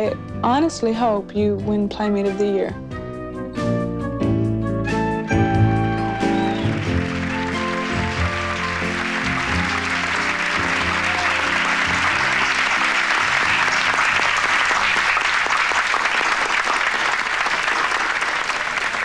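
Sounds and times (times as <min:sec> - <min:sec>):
music: 0:00.0 - 0:15.7
crowd applause: 0:04.9 - 0:19.0.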